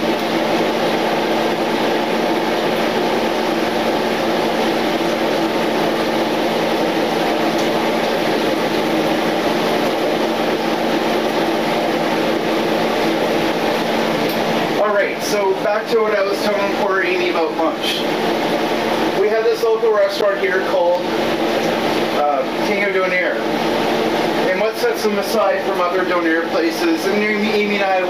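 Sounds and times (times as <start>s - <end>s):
range hood fan whirring: 0.0s - 28.0s.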